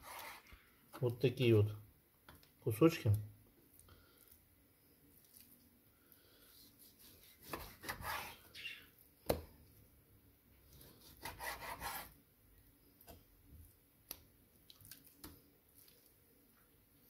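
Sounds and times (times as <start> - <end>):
knife slicing through meat: 6.5 - 8.5, 11.0 - 12.2.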